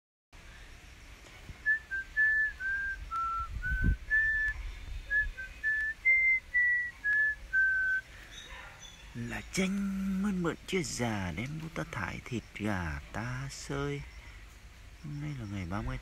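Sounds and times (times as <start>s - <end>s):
person whistling a tune: 1.6s - 8.0s.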